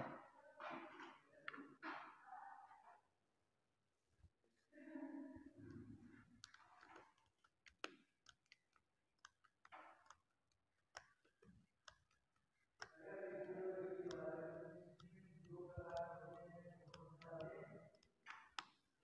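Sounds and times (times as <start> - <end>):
faint voice: 4.7 - 5.6
faint clicks and ticks: 4.8 - 19.0.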